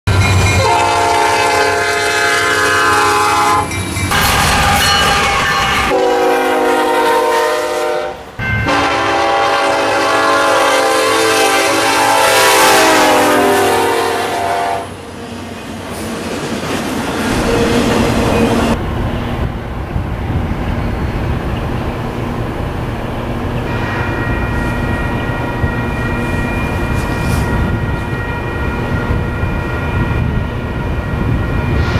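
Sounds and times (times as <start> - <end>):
passing train rumble: 0.1 - 31.9
locomotive air horn blasts: 0.6 - 15.0.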